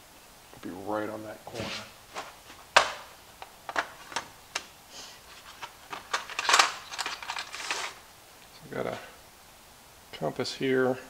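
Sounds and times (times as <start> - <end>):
rustling scrape: 1.5 - 2.7, 4.9 - 8.0.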